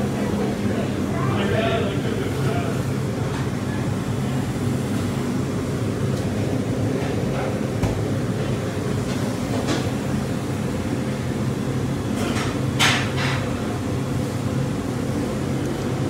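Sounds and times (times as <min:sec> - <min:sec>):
machinery humming: 0:00.0 - 0:12.2.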